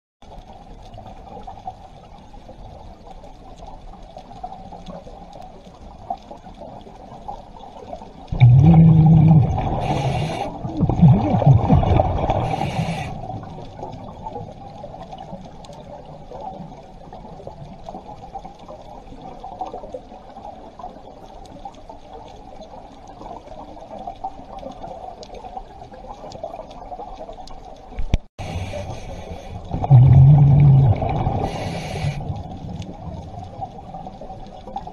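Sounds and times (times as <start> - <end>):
low wash of the sea underwater: 0.2 - 34.9
exhaled bubbles rumbling: 0.4 - 34.9
diver breathing through regulator: 8.6 - 11.2, 12.2 - 13.3, 28.4 - 32.4.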